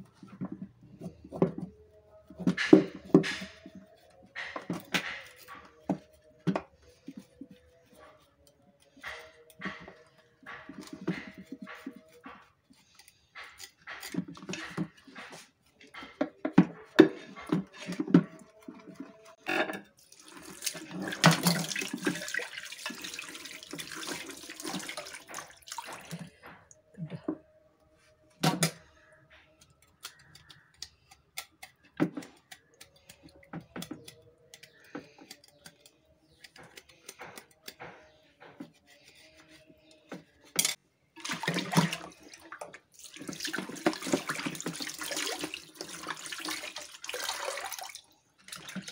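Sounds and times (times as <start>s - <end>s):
tap water splashing into sink: 20.2s - 26.3s, 41.2s - 48.9s.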